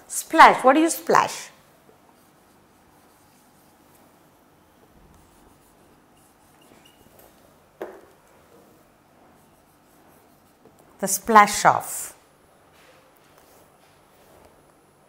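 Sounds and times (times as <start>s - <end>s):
marker squeaking on whiteboard: 5.2s - 7.4s.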